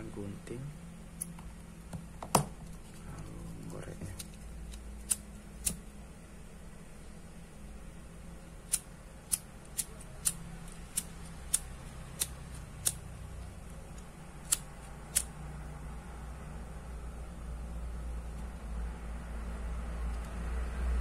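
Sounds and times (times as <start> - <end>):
lighter clicking: 4.2 - 5.8, 8.7 - 13.1, 14.4 - 15.4.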